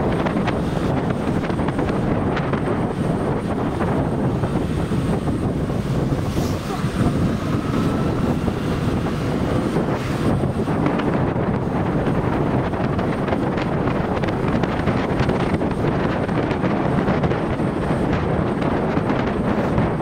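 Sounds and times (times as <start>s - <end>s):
motorcycle engine: 0.0s - 13.1s
road noise: 0.0s - 20.0s
wind rushing over microphone: 0.0s - 20.0s.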